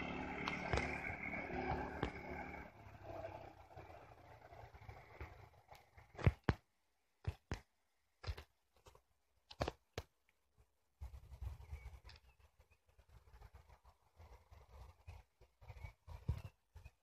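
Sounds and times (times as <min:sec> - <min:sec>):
low rumble: 0:00.0 - 0:05.8
small engine hum: 0:00.0 - 0:06.5
sharp knocks and crunches: 0:05.2 - 0:10.2.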